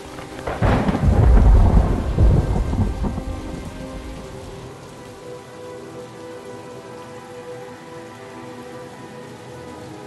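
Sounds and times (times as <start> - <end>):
falling rain: 0.0 - 10.0
thunderclap and rumble: 0.2 - 4.7.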